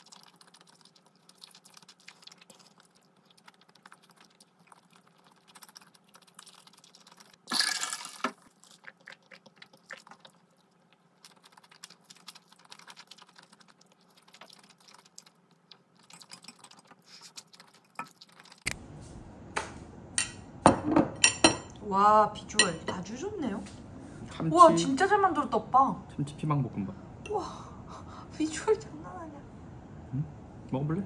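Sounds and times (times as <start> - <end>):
wet chewing: 0.0 - 7.6, 8.4 - 18.8
slurping noodles: 0.0 - 18.6
steady low hum: 18.7 - 31.0
chopsticks tapping a plate: 19.6 - 21.7.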